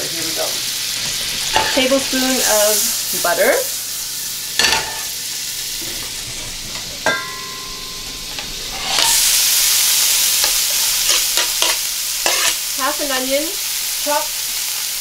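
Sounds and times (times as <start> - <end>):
butter sizzling in a skillet: 0.0 - 15.0
onion sizzling in a pan: 0.0 - 15.0
metallic clink: 7.0 - 8.5.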